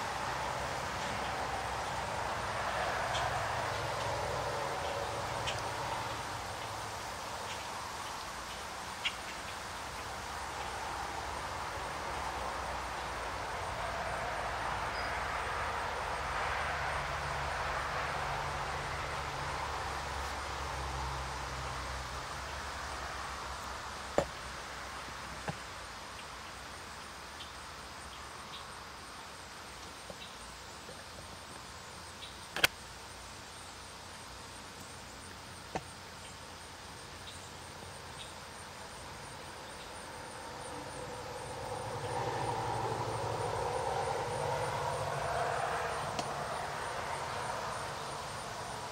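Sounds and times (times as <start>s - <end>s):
low rumble and hiss: 0.0s - 48.9s
sharp clicks: 32.6s - 32.8s.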